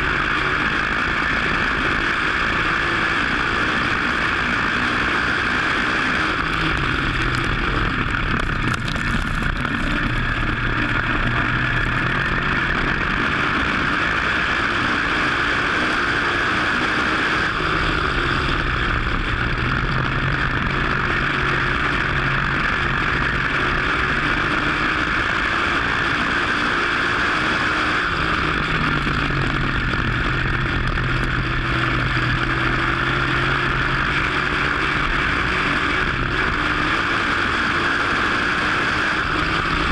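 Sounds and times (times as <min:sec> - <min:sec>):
race car engine: 0:00.0 - 0:39.9.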